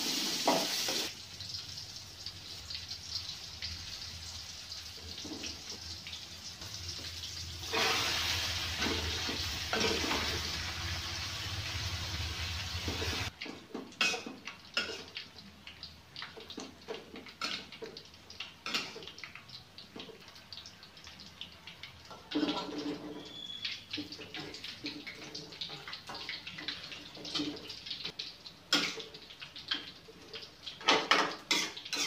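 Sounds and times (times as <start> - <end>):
hot oil sizzling in a wok: 0.0 - 32.0
metal spatula scraping a wok: 7.6 - 10.6.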